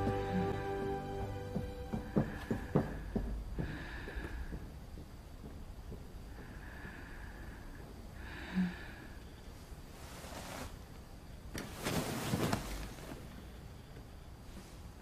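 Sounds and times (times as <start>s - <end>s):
soft breath: 2.0s - 4.8s, 6.3s - 10.8s
bedclothes rustling: 9.4s - 15.0s.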